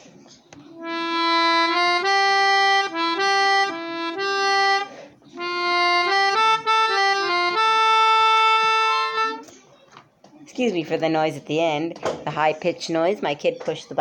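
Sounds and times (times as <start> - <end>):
melodica melody: 0.7 - 9.5.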